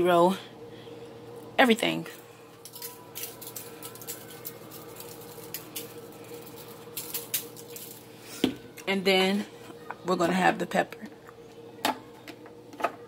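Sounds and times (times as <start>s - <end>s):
faint steady hum: 0.0s - 13.0s
seasoning pattering on meat: 2.6s - 8.3s.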